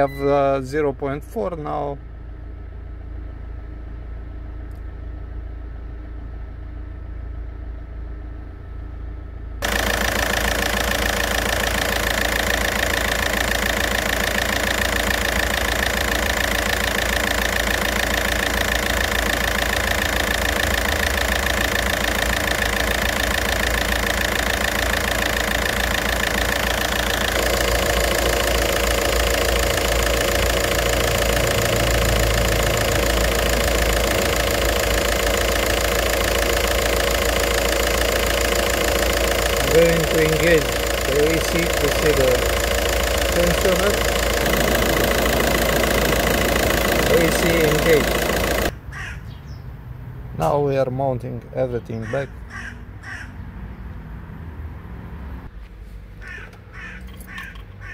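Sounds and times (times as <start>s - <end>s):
diesel engine idling: 0.0s - 49.1s
steady high whine: 9.6s - 48.7s.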